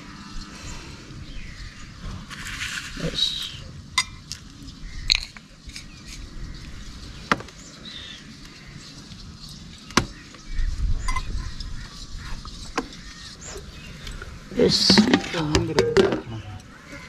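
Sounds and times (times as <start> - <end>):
dishes clinking: 14.9 - 16.6.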